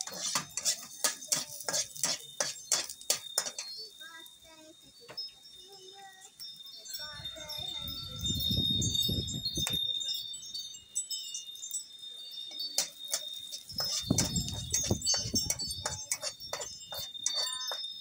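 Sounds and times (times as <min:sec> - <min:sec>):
spatula scraping a wok: 0:00.0 - 0:03.8, 0:12.8 - 0:17.6
garlic frying in oil: 0:00.0 - 0:04.9
high ringing tone: 0:05.0 - 0:18.0.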